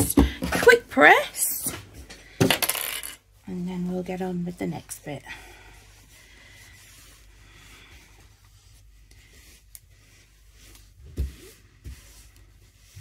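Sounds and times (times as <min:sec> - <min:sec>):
fabric rubbing: 0:05.5 - 0:13.0.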